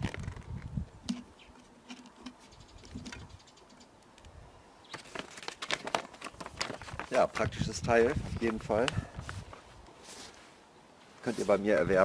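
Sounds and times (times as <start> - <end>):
plastic bag rustling and crinkling: 4.9 - 10.6.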